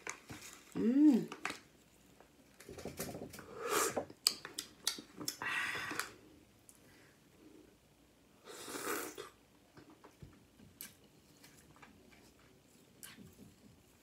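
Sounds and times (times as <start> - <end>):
person slurping: 3.5 - 4.0, 8.5 - 9.4
lip smacks and clicks: 4.2 - 6.1.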